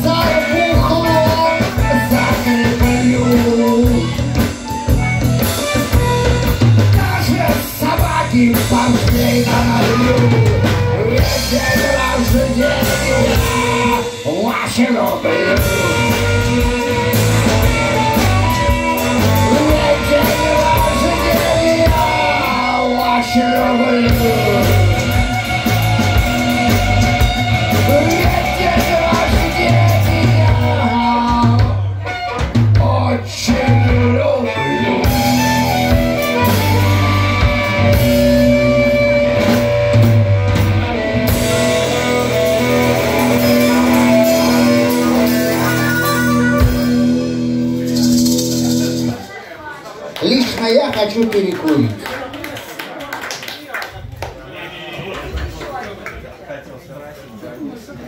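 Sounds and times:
harmonica melody: 0.0 - 14.1, 15.3 - 32.7, 33.4 - 49.1
drum kit: 0.0 - 49.4
electric guitars: 0.0 - 52.1
tambourine shaken: 47.8 - 49.2.

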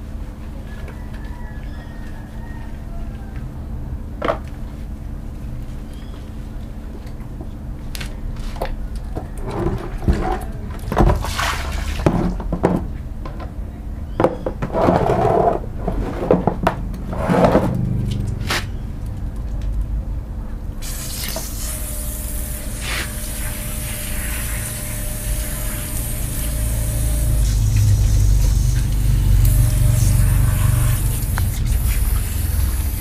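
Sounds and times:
water sloshing in plastic basin: 9.2 - 12.9.

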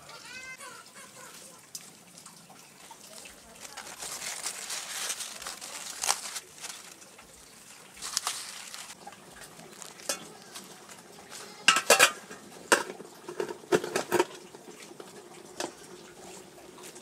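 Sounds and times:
metal pot lid clattering: 10.0 - 10.3, 11.6 - 14.4
lid ringing: 11.7 - 12.9.

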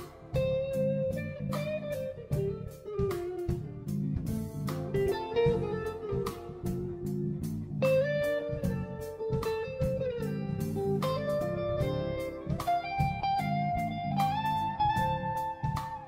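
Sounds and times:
sliding guitar melody: 0.0 - 16.0
steady drum beat: 0.0 - 16.0.

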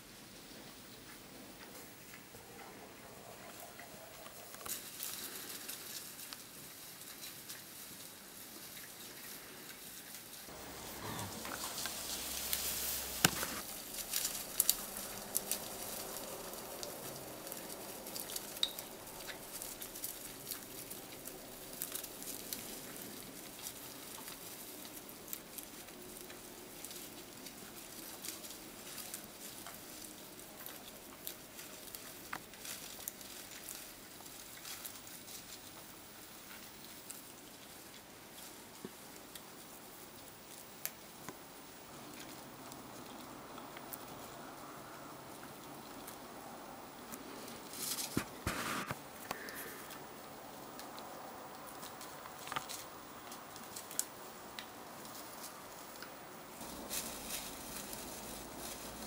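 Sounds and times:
rustle of dry leaves and twigs: 0.0 - 59.0.

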